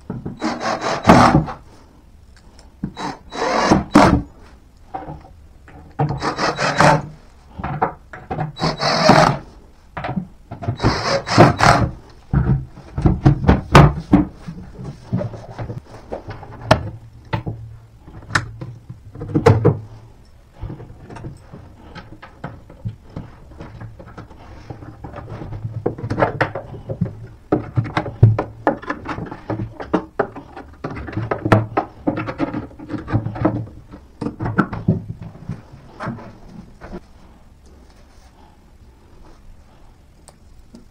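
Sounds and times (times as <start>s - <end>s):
cordless drill driving screws: 3.0s - 4.1s, 6.2s - 7.0s, 8.6s - 9.4s, 10.8s - 11.9s.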